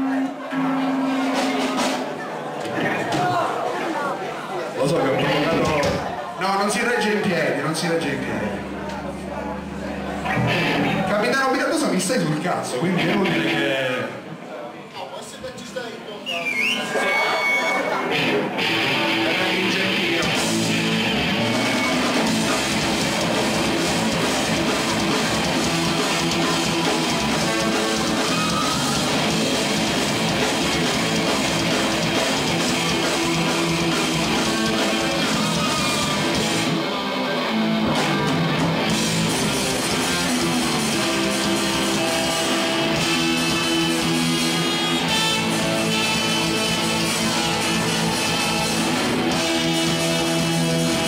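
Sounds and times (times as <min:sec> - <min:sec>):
rock band playing live: 0:00.0 - 0:03.3, 0:07.5 - 0:12.1, 0:12.8 - 0:13.7, 0:17.1 - 0:51.0
drum kit: 0:00.0 - 0:03.4, 0:18.1 - 0:51.0
strummed electric guitars: 0:08.0 - 0:12.0, 0:12.8 - 0:13.9, 0:17.8 - 0:51.0.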